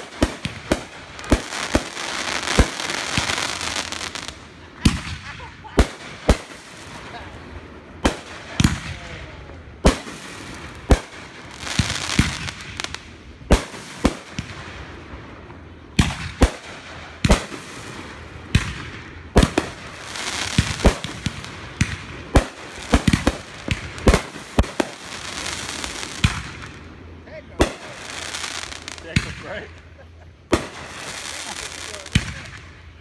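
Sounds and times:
fireworks hiss: 0:00.0 - 0:15.4, 0:16.0 - 0:33.0
fireworks bangs: 0:00.0 - 0:26.9, 0:27.5 - 0:33.0.

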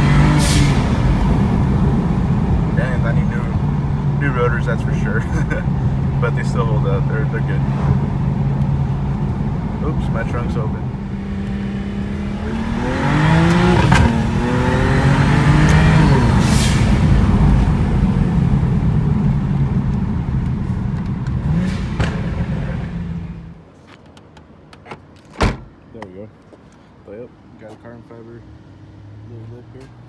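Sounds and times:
car engine accelerating: 0:00.0 - 0:23.6.

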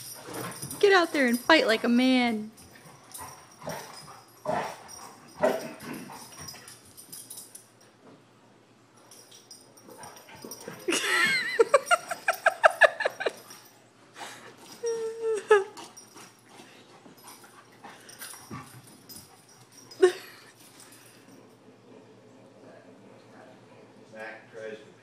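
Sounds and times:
puppy whining: 0:14.3 - 0:16.4.

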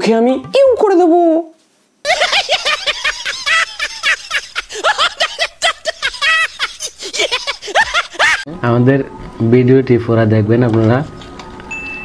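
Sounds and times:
man laughing hard: 0:02.0 - 0:08.5.

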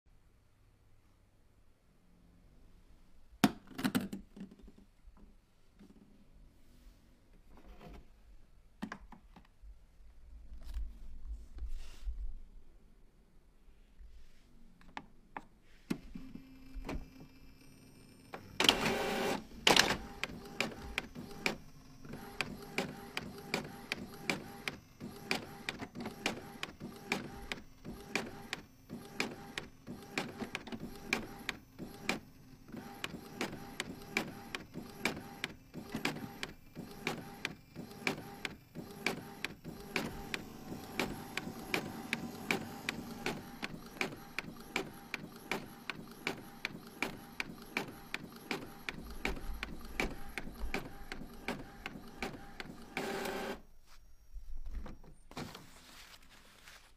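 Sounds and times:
rhythmic printer clicking: 0:15.9 - 0:53.6
printer motor whirring: 0:15.9 - 0:55.6
printer mechanism burst: 0:18.4 - 0:53.6.

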